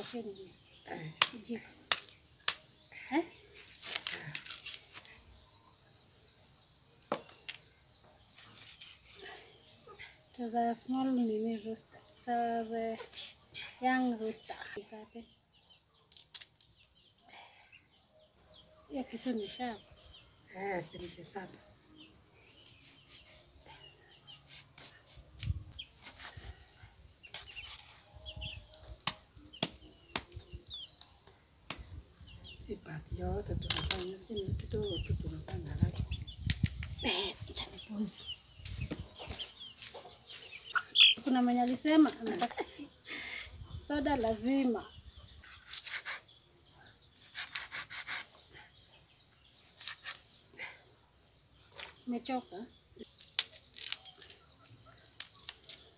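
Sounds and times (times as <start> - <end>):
birds chirping: 0.0 - 55.9
knife cutting chicken carcass: 47.2 - 48.4.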